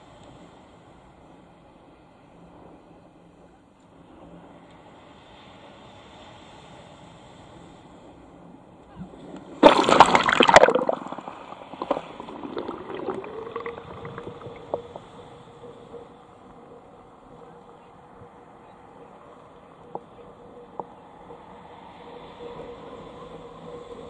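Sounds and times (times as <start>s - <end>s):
water gurgling and trickling: 9.4s - 22.0s
seawater splashing: 9.5s - 21.5s
thin steady tone: 10.2s - 24.0s.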